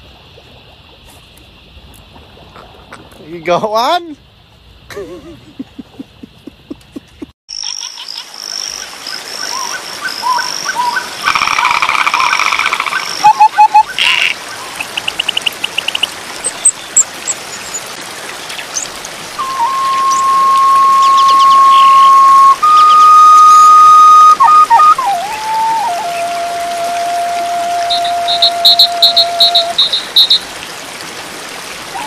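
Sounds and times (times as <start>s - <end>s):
frogs croaking: 0.0s - 25.9s, 27.8s - 30.6s
insects chirping: 0.0s - 30.6s
long steady whistled tone: 19.4s - 30.4s
birds calling: 27.9s - 30.5s.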